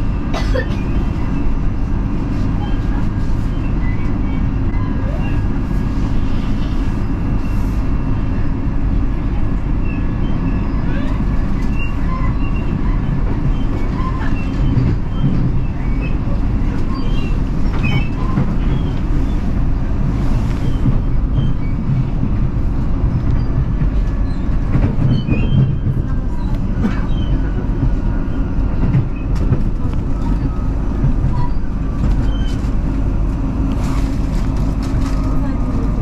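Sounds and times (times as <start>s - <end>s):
train wheels rumbling on rails: 0.0s - 36.0s.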